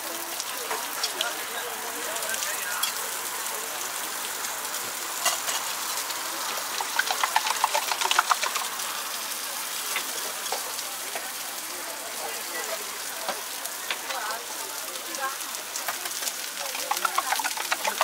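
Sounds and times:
food sizzling in oil: 0.0s - 18.0s
sharp clattering taps: 6.8s - 8.7s, 16.7s - 18.0s.

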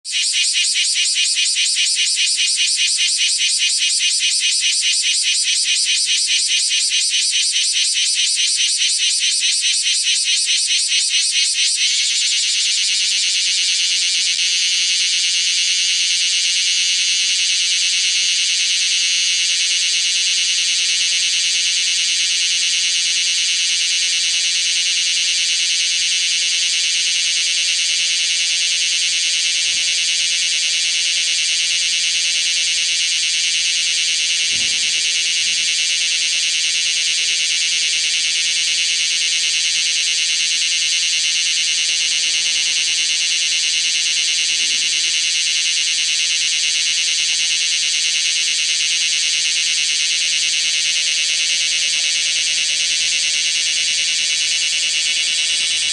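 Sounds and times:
cicada shrill buzz: 0.0s - 46.0s, 50.8s - 55.9s.

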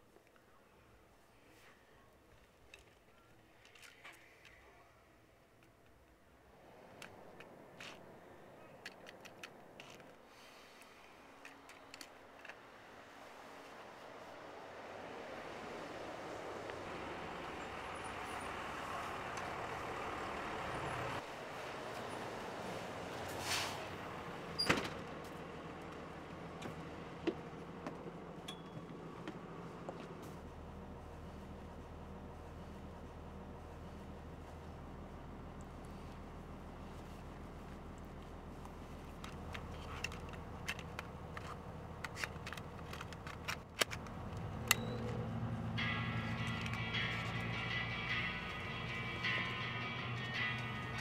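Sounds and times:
bus engine hum: 4.8s - 51.0s
bus doors hissing open: 23.3s - 25.0s.

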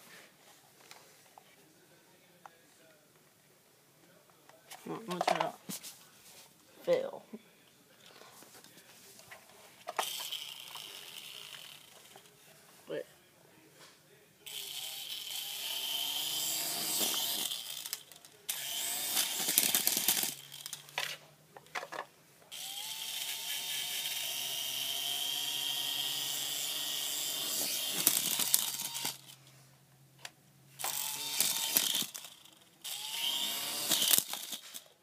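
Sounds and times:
toy helicopter motors whining: 10.0s - 11.9s, 14.5s - 20.8s, 22.5s - 29.4s, 30.8s - 34.9s.

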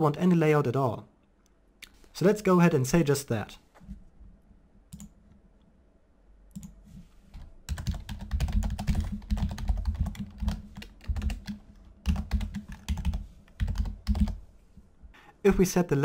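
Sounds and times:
computer keyboard typing: 7.4s - 14.4s.

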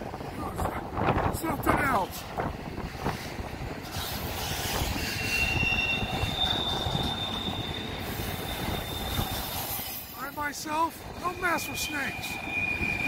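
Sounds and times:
freight train rolling on rails: 0.0s - 13.0s
high-pitched wheel squeal: 4.0s - 10.2s, 11.3s - 13.0s.

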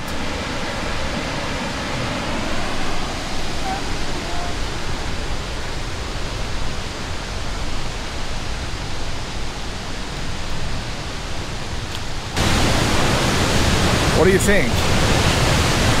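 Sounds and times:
waterfall roaring: 0.0s - 16.0s.

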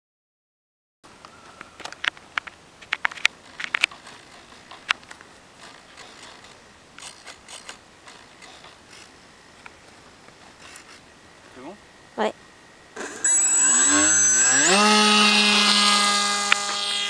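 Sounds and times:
sharp handling clicks and knocks: 1.8s - 11.0s.

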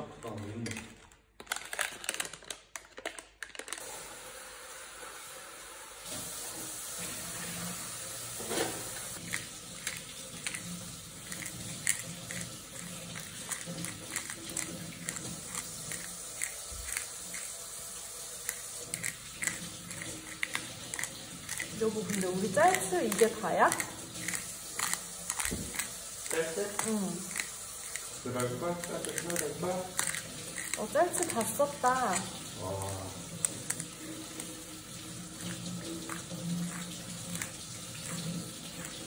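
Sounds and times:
spice jar shaken: 9.2s - 17.5s, 18.4s - 32.4s.

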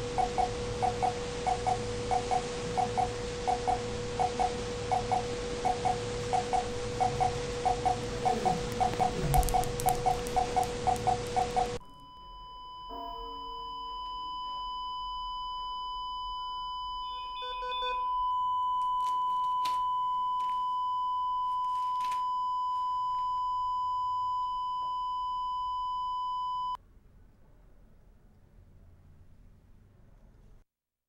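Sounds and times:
pulsed beeps: 0.0s - 18.8s
heart monitor flatline tone: 0.0s - 26.8s.

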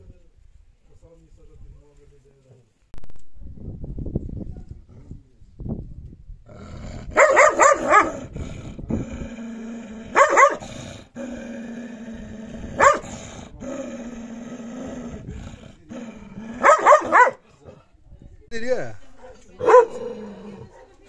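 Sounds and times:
dog growling: 6.5s - 17.9s, 19.6s - 20.9s
dog barking: 7.2s - 8.2s, 10.2s - 10.6s, 12.8s - 13.1s, 16.6s - 17.4s, 19.2s - 21.0s.

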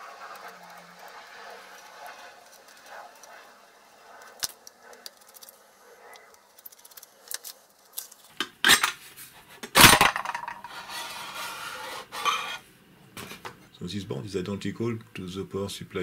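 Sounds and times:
loud metal scrapes: 10.6s - 12.7s
soft metal rubbing: 10.6s - 12.7s.

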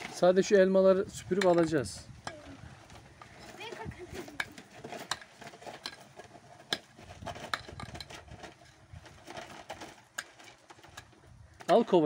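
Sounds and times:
shovel scraping and clinking: 3.2s - 11.1s.

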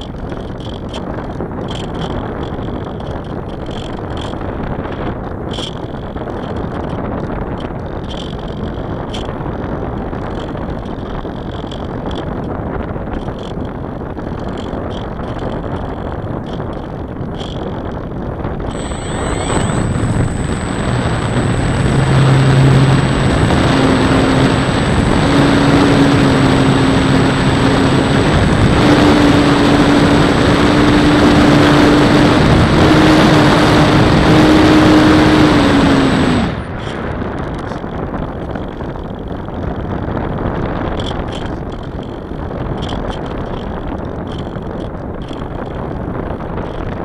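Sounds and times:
model airplane motor hum: 0.0s - 47.0s
wind rushing over microphone: 0.0s - 47.0s
thin high whine: 18.6s - 37.7s.

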